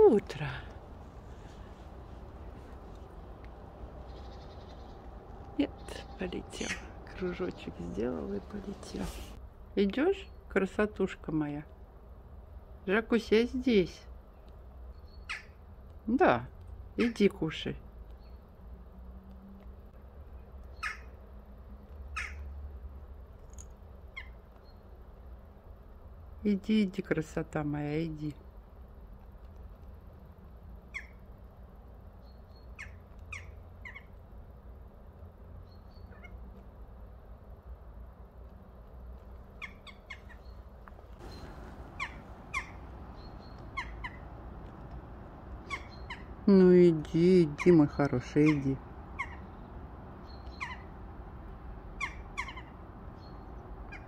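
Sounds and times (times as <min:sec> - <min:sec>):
jackdaw calling: 0:00.0 - 0:09.4, 0:39.6 - 0:54.0
low background rumble: 0:00.0 - 0:16.1, 0:33.1 - 0:54.0.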